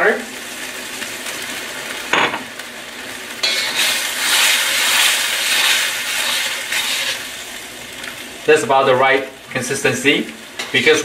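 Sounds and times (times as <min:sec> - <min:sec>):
sauce simmering in a wok: 0:00.0 - 0:11.0
metal spoon stirring in wok: 0:03.4 - 0:07.2.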